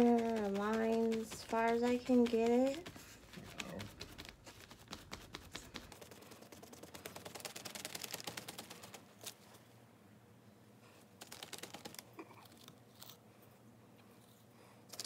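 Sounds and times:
sponge dabbing paint on canvas: 0.0s - 9.4s.

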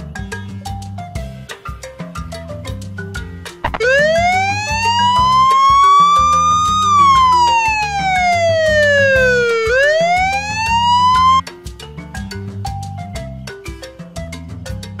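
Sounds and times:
background music with beat: 0.0s - 15.0s
police siren wailing: 3.6s - 11.4s.

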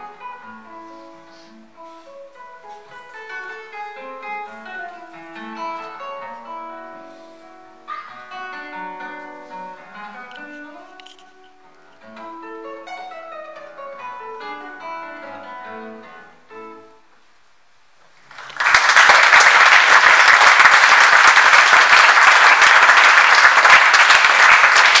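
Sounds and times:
classical guitar playing: 0.0s - 17.0s
audience applauding: 18.2s - 25.0s.

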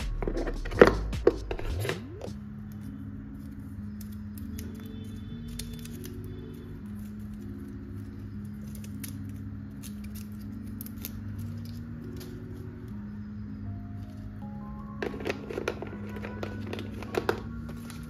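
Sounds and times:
soft background music: 0.0s - 18.0s
cable clicking and rustling: 2.6s - 13.0s, 14.0s - 18.0s.

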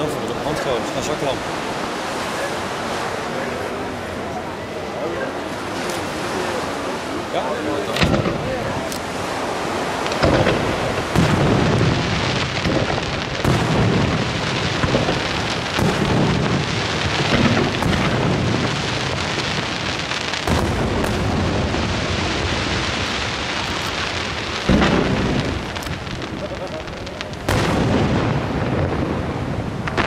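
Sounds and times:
continuous hiss: 0.0s - 30.0s
firework shells bursting with booms: 7.9s - 30.0s.

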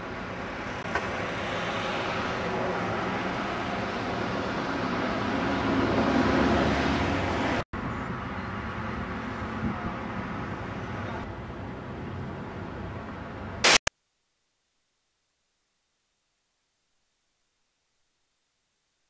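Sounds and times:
road traffic: 0.0s - 13.9s.

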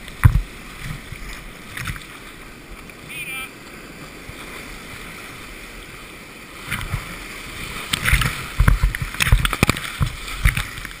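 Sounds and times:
waves crashing and splashing: 0.0s - 11.0s
whitewater rapids rushing: 0.0s - 11.0s.

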